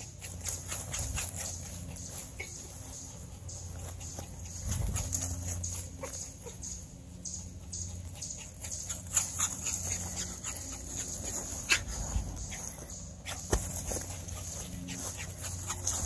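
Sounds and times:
dog sounds: 0.0s - 16.0s
dog running on grass: 9.0s - 16.0s.

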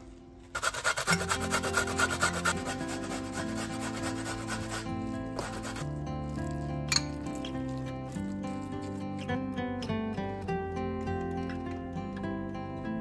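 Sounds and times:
soft background music: 0.0s - 13.0s
carrot grated on metal grater: 0.6s - 5.8s.

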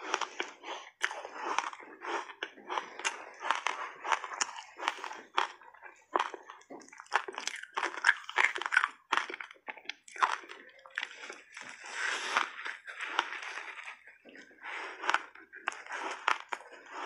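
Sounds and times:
crunching and chewing ice: 0.0s - 17.0s
ice cracking between teeth: 0.1s - 17.0s.

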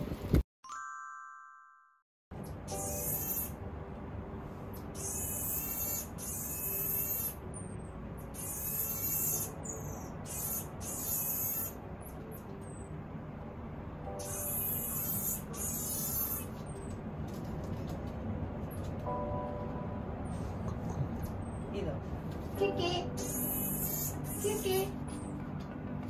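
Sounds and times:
monkey whistling calls: 14.1s - 16.5s, 23.2s - 24.7s.

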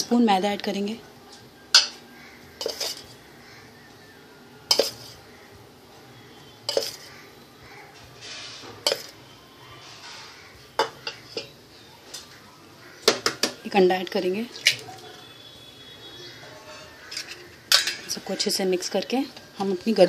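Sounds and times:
metal spoon clinking steel bowl: 1.8s - 2.0s, 2.6s - 3.2s, 4.7s - 5.2s, 6.7s - 7.1s, 8.8s - 9.2s, 16.8s - 18.5s.

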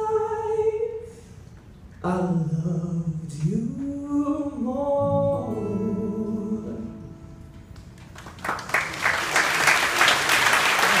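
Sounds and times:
audience applause: 8.0s - 11.0s.

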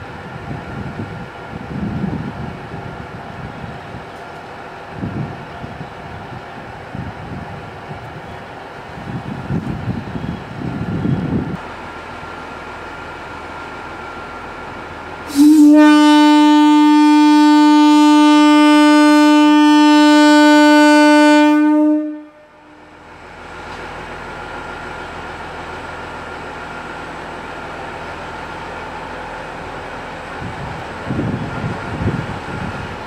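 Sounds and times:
diesel engine running: 11.3s - 15.3s
train horn blast: 15.3s - 22.9s.

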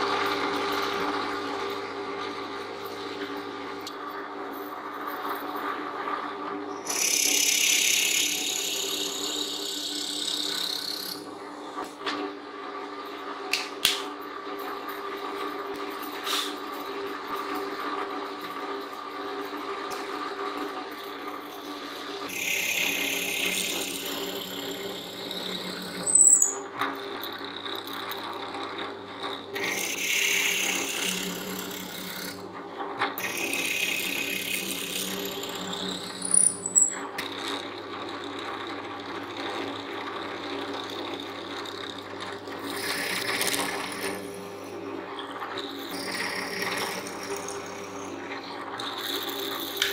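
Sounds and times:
drill press motor running: 0.0s - 49.9s
drill bit cutting wood: 6.8s - 11.2s, 22.3s - 32.4s, 33.2s - 44.8s, 45.6s - 49.9s
sharp loud squeaks: 26.0s - 26.6s, 36.1s - 37.0s.

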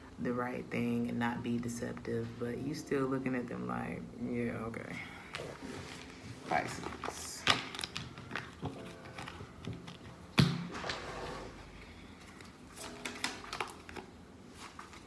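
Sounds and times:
cards being shuffled: 5.3s - 11.0s, 12.2s - 15.0s.

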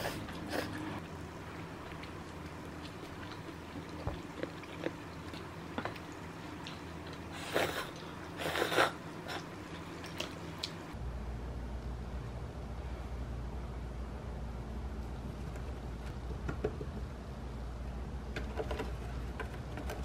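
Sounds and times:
soft chewing: 0.0s - 11.0s
noisy sips of soup: 7.3s - 9.5s.

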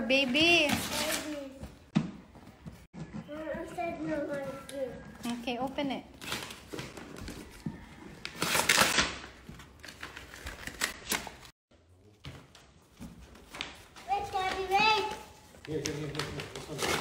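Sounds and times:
wrapping paper tearing: 8.3s - 11.5s, 15.7s - 17.0s.

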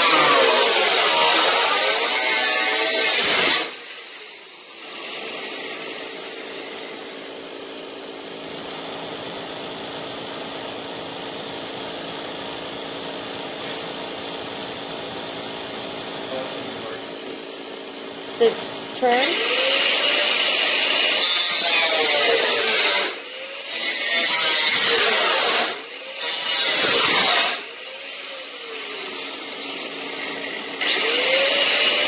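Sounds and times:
grinder cutting sheet metal: 0.0s - 7.8s, 18.4s - 32.0s.

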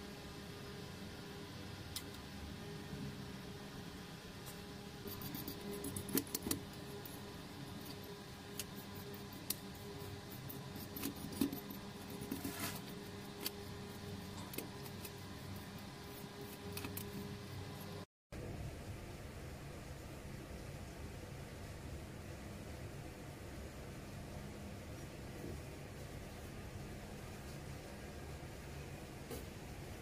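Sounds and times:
steady low hum: 0.0s - 30.0s
stiff brush scrubbing: 5.0s - 18.0s.

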